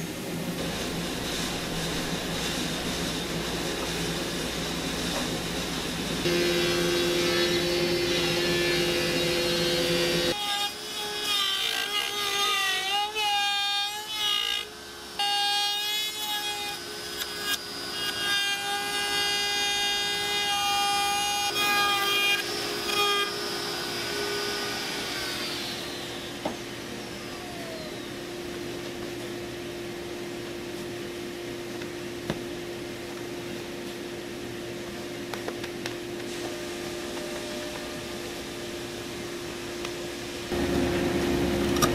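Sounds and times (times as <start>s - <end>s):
router cutting wood: 6.2s - 28.2s.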